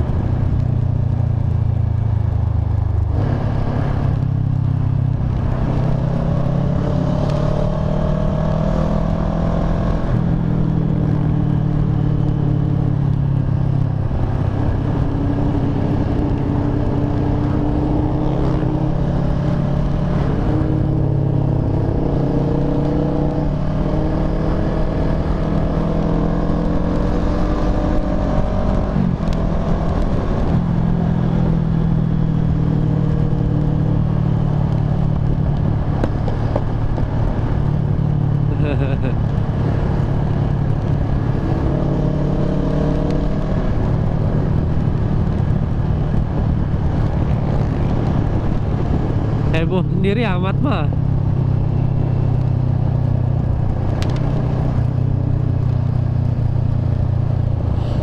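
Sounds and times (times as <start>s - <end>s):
motorcycle engine accelerating: 0.0s - 58.0s.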